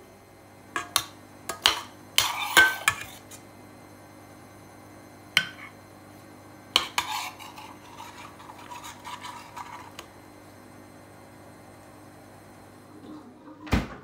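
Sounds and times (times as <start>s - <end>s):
spoon stirring thick gravy: 5.4s - 10.2s.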